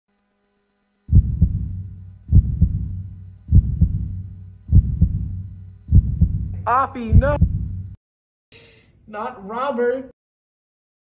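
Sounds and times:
heartbeat double thump: 0:01.1 - 0:08.0
low hum: 0:01.1 - 0:08.0.

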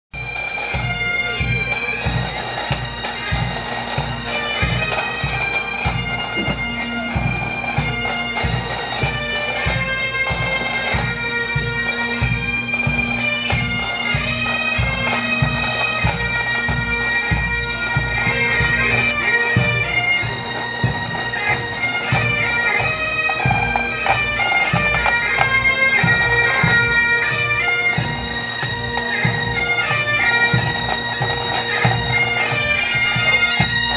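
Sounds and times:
bagpipes playing melody over drones: 0:00.2 - 0:33.9
regular drum beat: 0:00.8 - 0:27.0.

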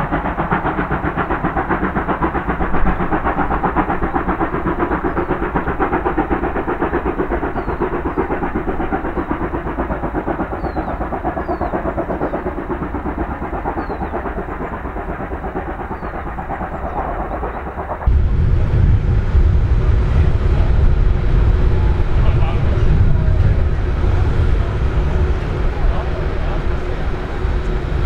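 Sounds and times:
steam locomotive chuffing: 0:00.0 - 0:28.0.

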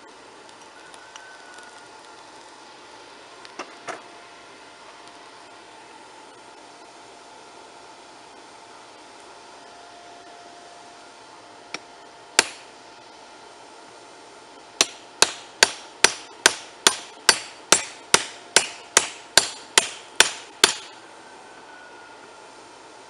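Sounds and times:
hammer striking steel: 0:12.4 - 0:12.6, 0:14.8 - 0:21.0.

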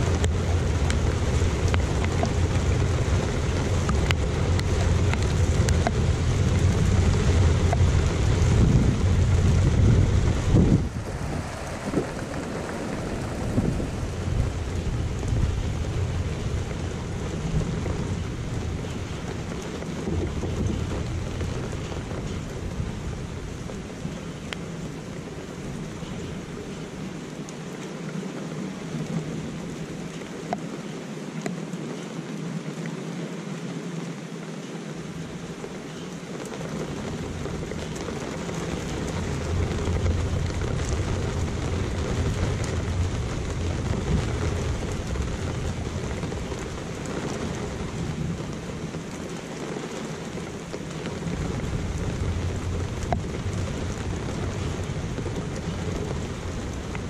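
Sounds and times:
low roll of thunder: 0:00.0 - 0:24.2
steady rain falling: 0:00.0 - 0:57.0.

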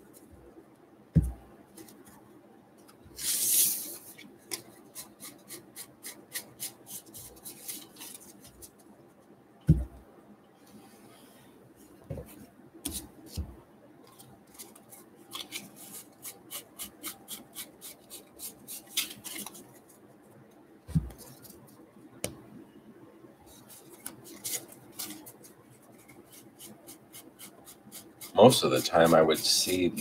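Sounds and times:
cards snapping and rustling: 0:14.2 - 0:16.1, 0:18.8 - 0:19.7.

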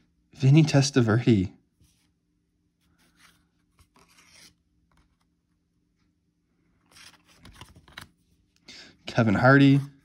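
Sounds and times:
trading cards shuffling: 0:02.9 - 0:05.3, 0:06.8 - 0:08.2.

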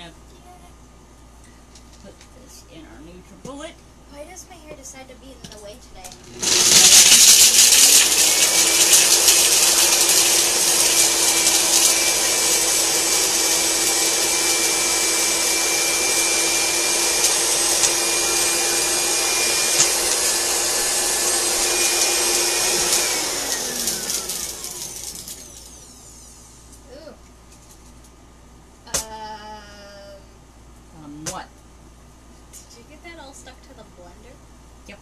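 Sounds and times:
blender motor running: 0:06.1 - 0:26.6.

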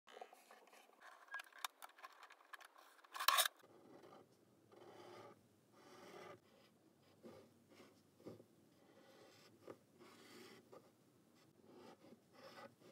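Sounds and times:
pen scratching on paper: 0:03.4 - 0:12.9.

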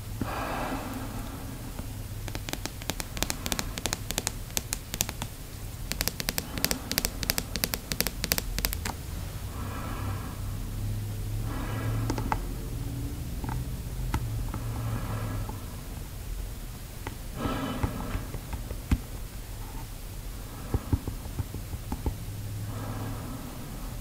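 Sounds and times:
breaths through snorkel: 0:00.2 - 0:01.9, 0:17.3 - 0:18.5
fingernails tapping on plastic tube: 0:02.2 - 0:09.0, 0:12.0 - 0:12.5, 0:20.6 - 0:22.2.

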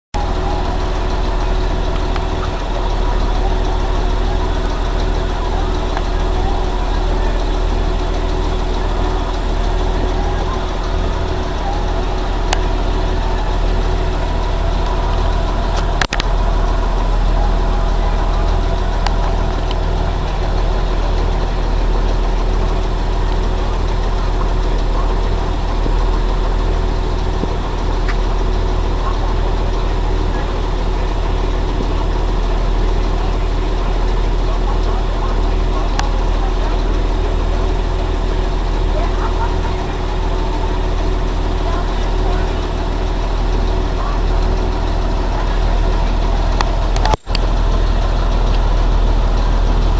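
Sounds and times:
bus engine idling: 0:00.1 - 0:49.9
sharp click: 0:46.6 - 0:47.5.

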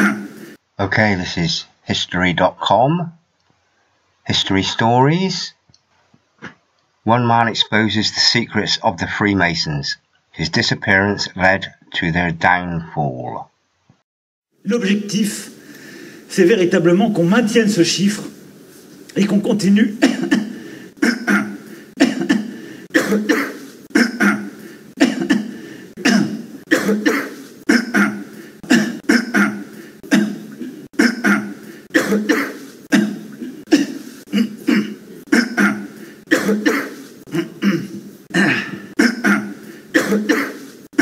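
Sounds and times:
man coughing: 0:00.0 - 0:00.6, 0:19.9 - 0:41.0.

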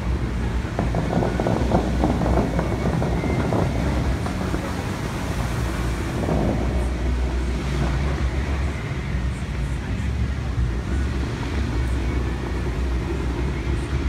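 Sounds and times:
fountain water jets rushing: 0:00.0 - 0:14.0
low rumble: 0:00.0 - 0:14.0
spray falling onto water: 0:00.0 - 0:14.0.

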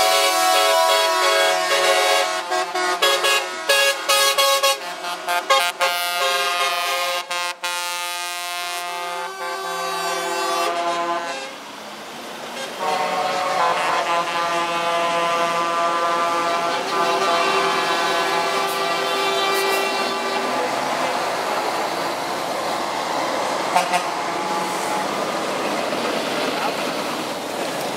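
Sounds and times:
truck air horns blasting: 0:00.0 - 0:11.6, 0:12.6 - 0:21.3, 0:23.7 - 0:25.3.

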